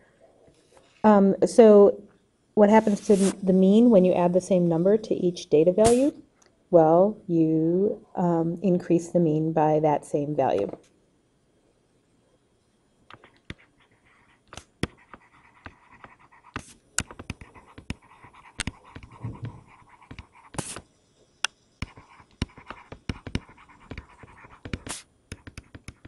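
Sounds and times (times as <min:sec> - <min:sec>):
stylus scratching strokes: 0:02.8 - 0:03.6, 0:13.1 - 0:20.9, 0:21.8 - 0:26.0
stylus tapping on tablet: 0:14.5 - 0:20.8, 0:21.4 - 0:26.0.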